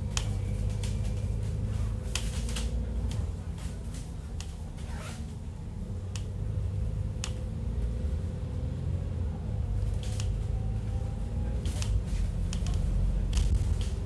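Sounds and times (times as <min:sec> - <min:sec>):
tram cabin rumble: 0:00.0 - 0:14.0
sharp clicks: 0:07.2 - 0:07.5.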